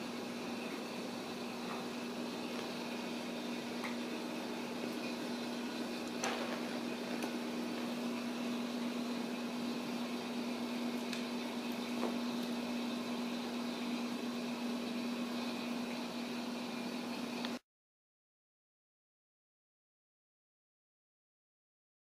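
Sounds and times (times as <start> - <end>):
appliance hum over hiss: 0.0 - 17.6.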